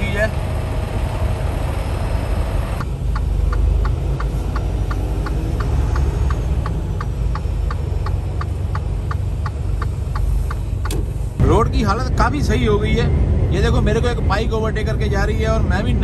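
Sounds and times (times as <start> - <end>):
diesel truck engine running: 0.0 - 16.0
turn signal clicking: 2.8 - 11.3.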